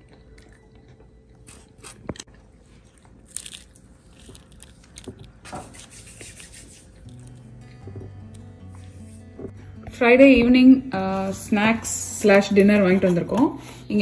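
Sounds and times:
crunching and chewing snacks: 0:00.0 - 0:05.8, 0:06.9 - 0:07.6
background music: 0:06.0 - 0:14.0.

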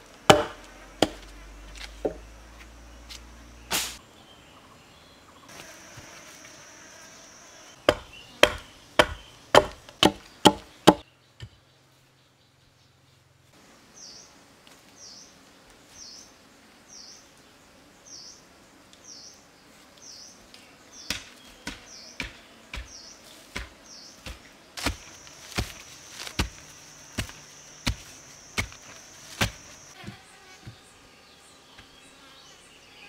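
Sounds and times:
wooden stick striking hard soil: 0:00.1 - 0:02.3, 0:07.9 - 0:11.0, 0:21.0 - 0:30.8.

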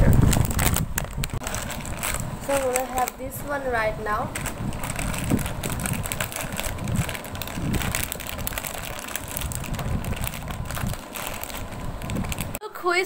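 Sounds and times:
plastic snack packet crinkling: 0:00.0 - 0:12.6.

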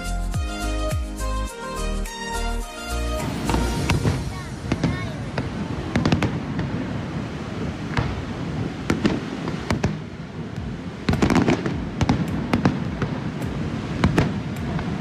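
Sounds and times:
fireworks bangs and crackles: 0:03.2 - 0:15.0.

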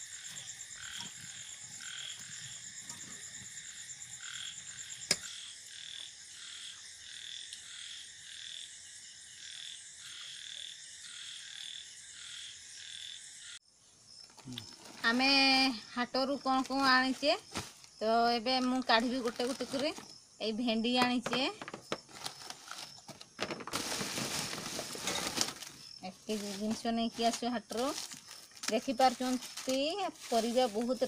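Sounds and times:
frogs calling: 0:00.0 - 0:08.8
high insect trill: 0:00.0 - 0:31.0.

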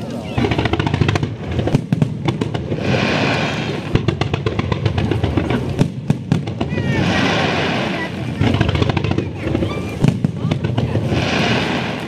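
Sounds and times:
fireworks bangs: 0:00.0 - 0:12.0
fireworks crackling: 0:00.0 - 0:12.0.

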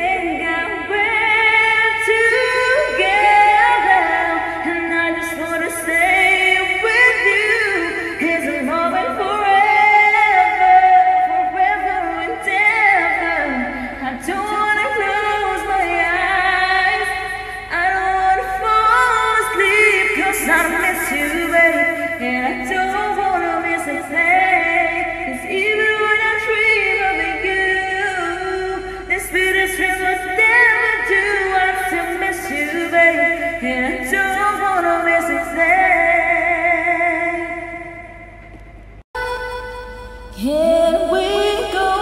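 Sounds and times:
woman singing a slow ballad: 0:00.0 - 0:38.2, 0:40.3 - 0:42.0.

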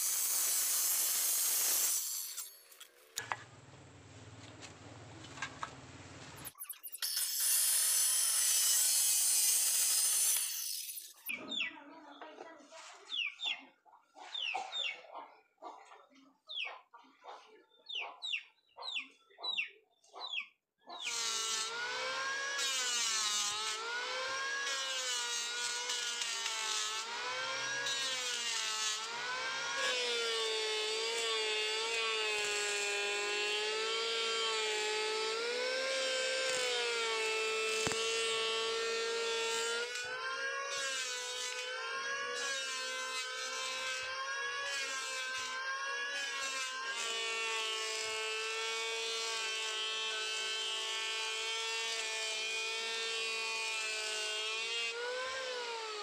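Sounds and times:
electric planer motor whine: 0:21.1 - 0:56.0.

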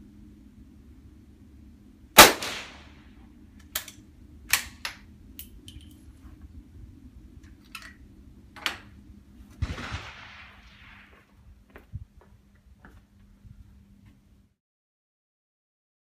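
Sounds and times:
gunshot with echo: 0:02.2 - 0:02.9, 0:09.6 - 0:11.2
rifle bolt metallic clicks: 0:03.6 - 0:06.0.

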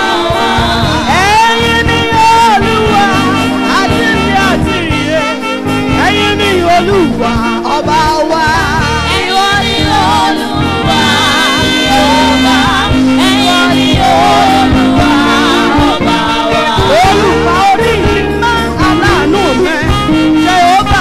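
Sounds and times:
woman singing gospel song: 0:00.0 - 0:05.0, 0:07.2 - 0:19.7
instrumental backing with beat: 0:00.0 - 0:21.0.

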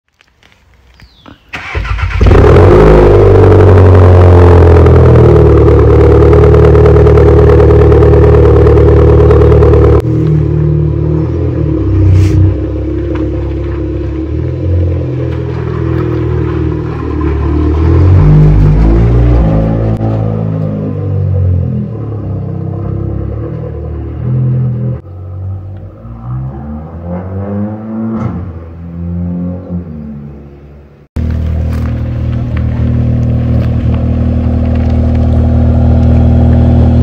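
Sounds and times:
car engine starting and idling: 0:01.3 - 0:26.4, 0:31.0 - 0:37.0.

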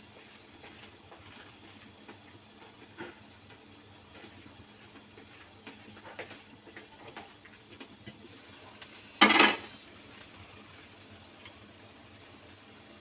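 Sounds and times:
faint ticks from simmering wok: 0:00.0 - 0:13.0
glass lid clattering on metal wok: 0:09.2 - 0:09.7.

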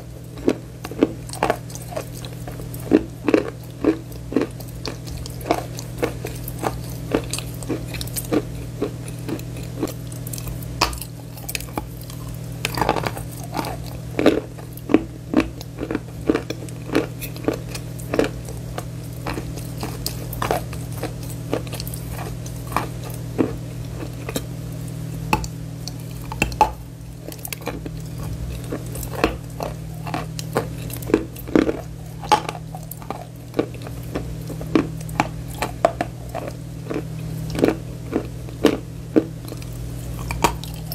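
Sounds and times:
chewing crunches: 0:00.0 - 0:40.9
low hum: 0:17.9 - 0:40.9.

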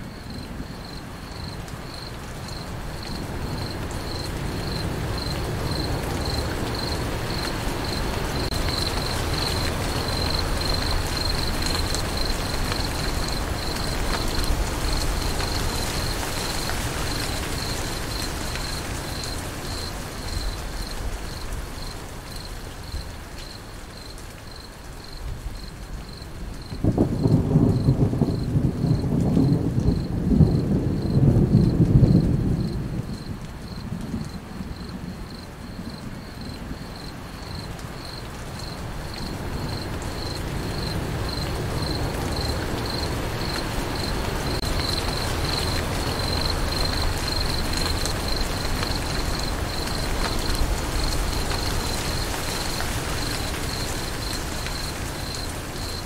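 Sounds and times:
crickets chirping: 0:00.0 - 0:56.0
rain: 0:00.0 - 0:56.0
thunder rumbling: 0:26.4 - 0:38.0.

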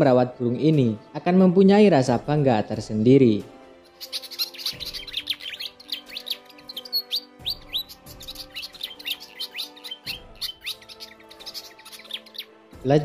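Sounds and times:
soft background music: 0:00.0 - 0:13.0
bird singing high chirps: 0:03.8 - 0:12.7.

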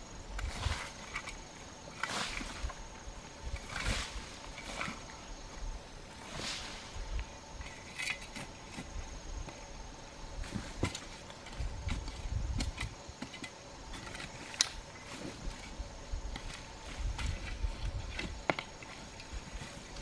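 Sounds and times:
insects droning: 0:00.0 - 0:20.0
shovel digging into soil: 0:01.9 - 0:02.8, 0:03.5 - 0:05.1, 0:06.2 - 0:09.0.

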